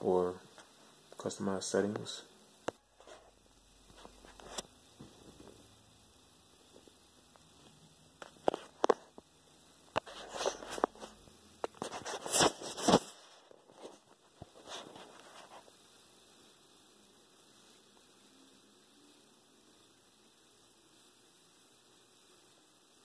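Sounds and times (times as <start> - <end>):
rustling and scraping: 3.0 - 5.7, 8.2 - 9.3, 10.0 - 15.8.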